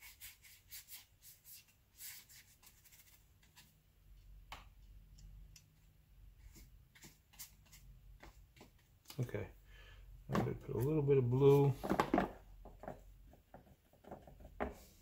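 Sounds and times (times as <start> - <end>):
wet brush scraping paper: 0.0 - 3.8, 6.4 - 8.8.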